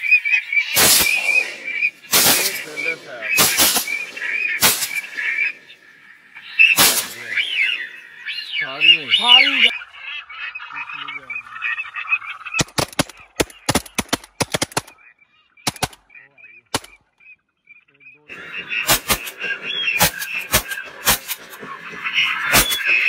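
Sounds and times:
ducks quacking: 0.0s - 23.0s
rapid sharp clicks: 0.8s - 5.4s, 12.5s - 15.0s, 15.7s - 16.1s, 16.7s - 17.0s, 18.9s - 23.0s
shotgun shot: 0.8s - 5.5s, 6.7s - 7.4s, 12.6s - 15.0s, 15.7s - 16.0s, 16.7s - 17.0s, 18.8s - 19.4s, 20.0s - 21.5s, 22.5s - 23.0s.

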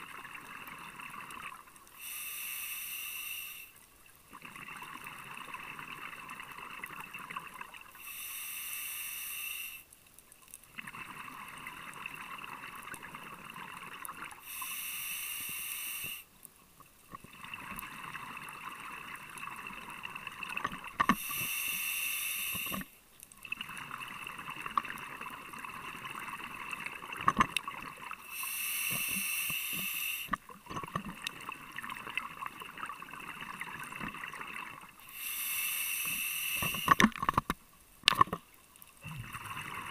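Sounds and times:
regulator hiss on inhale: 1.8s - 3.9s, 7.9s - 10.0s, 14.3s - 16.4s, 21.0s - 23.0s, 28.1s - 30.5s, 35.0s - 37.2s.

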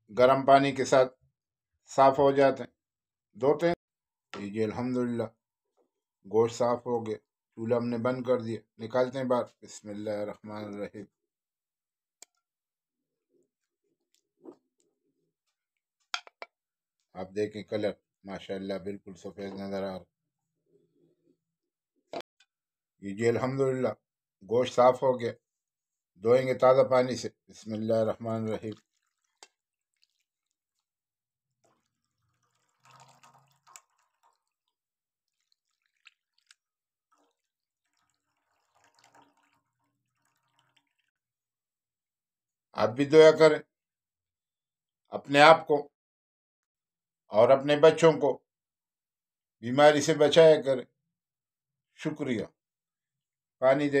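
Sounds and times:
water sloshing in a pan: 28.3s - 41.2s.

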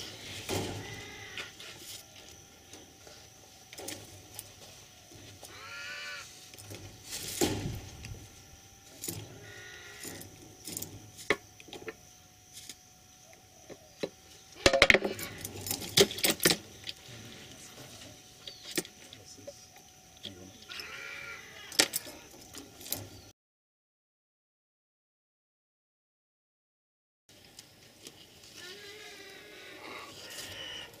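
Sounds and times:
crows handling stones clicking: 18.4s - 23.0s.

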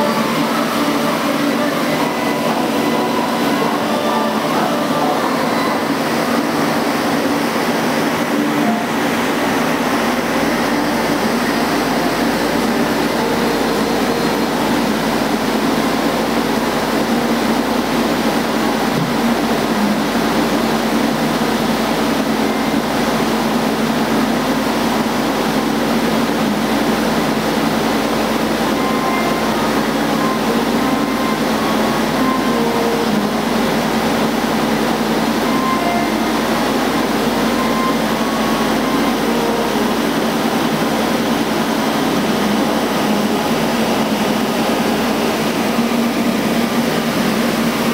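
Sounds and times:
milling machine cutting metal: 0.0s - 47.9s.

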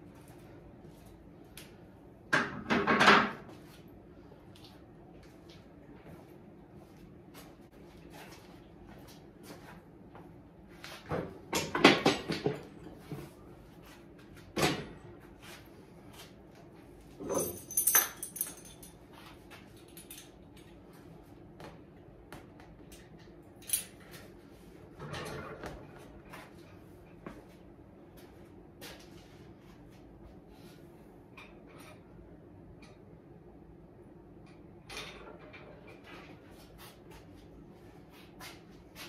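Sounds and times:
gym equipment knocking and clanking: 11.2s - 12.7s
ringing metal clink: 17.2s - 19.0s.

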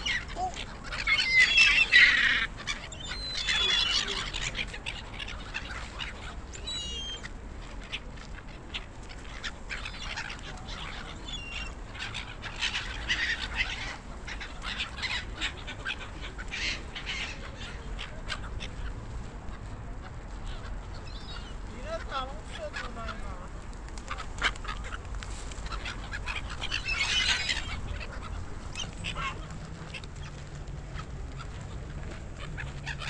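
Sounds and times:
gulls squawking: 0.0s - 33.0s.

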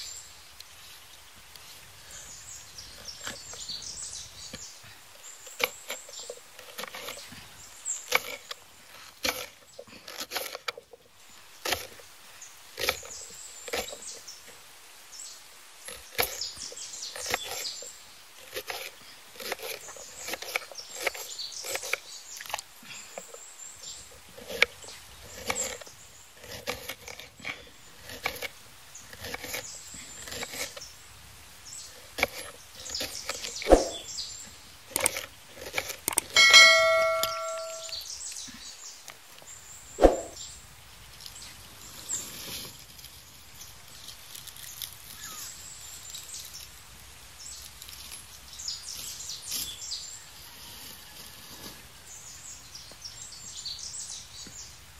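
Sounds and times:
knife chopping on cutting board: 33.7s - 34.0s, 40.0s - 40.4s
bell chime: 36.4s - 38.0s.

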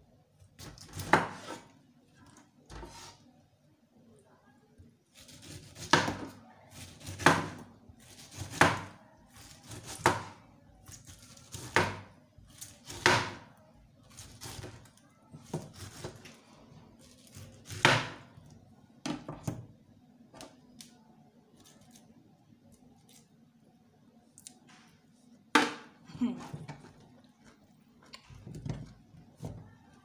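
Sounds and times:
knife chopping on plastic board: 0.7s - 1.6s, 5.7s - 9.0s, 9.6s - 10.4s, 11.5s - 12.1s, 12.8s - 13.5s, 17.6s - 18.3s.

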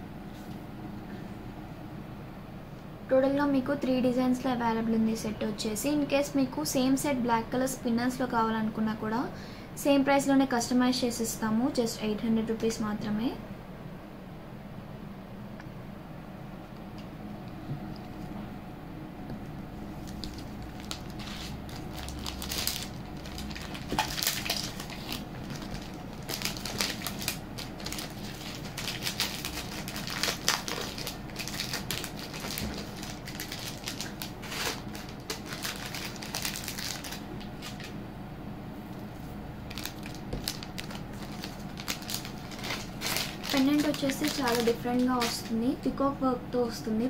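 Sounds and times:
plastic packaging crinkling: 20.0s - 38.0s, 39.6s - 45.6s.

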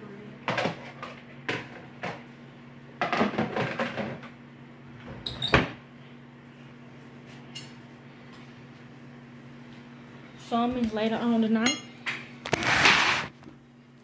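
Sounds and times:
kitchen items clattering: 3.0s - 4.2s.

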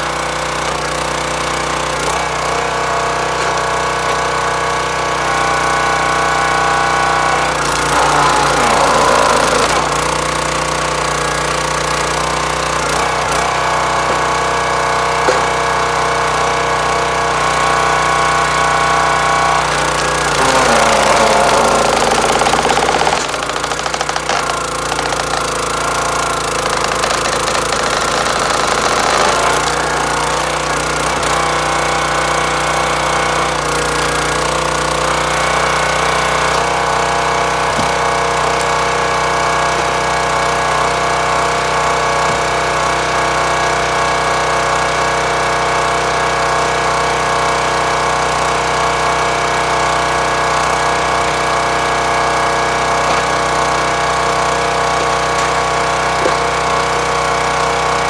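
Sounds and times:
small gas engine running: 0.0s - 58.0s
log splitting on wedge: 3.2s - 4.5s, 55.0s - 56.6s.

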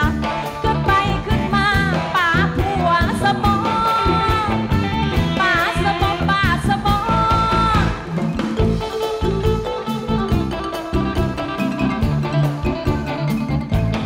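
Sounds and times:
woman singing: 0.0s - 8.2s
live band playing: 0.0s - 14.0s.

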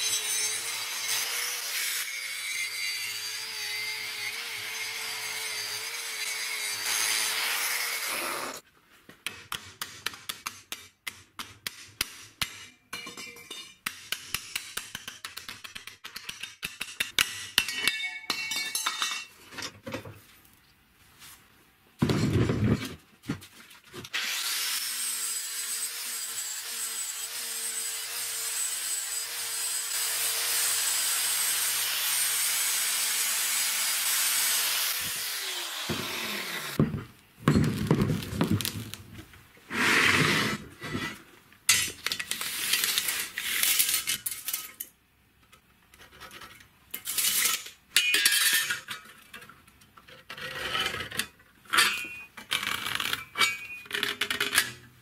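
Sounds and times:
angle grinder on steel: 0.0s - 8.6s, 24.1s - 36.8s.

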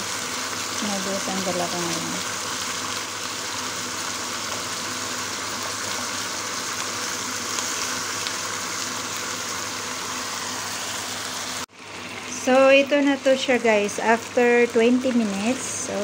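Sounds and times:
chicken sizzling in a pan: 0.0s - 16.0s.

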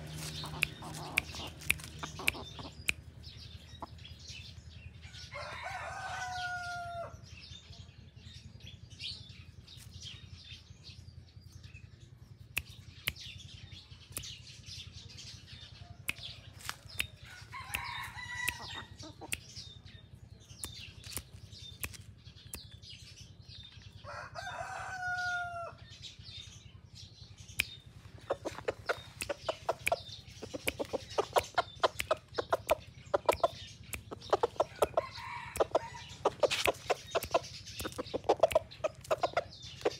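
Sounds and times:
bird pecking ground clicks: 0.0s - 3.0s, 20.6s - 22.1s, 28.3s - 39.9s
rooster crowing: 5.1s - 7.2s, 17.3s - 18.9s, 24.0s - 25.8s, 35.0s - 36.0s.

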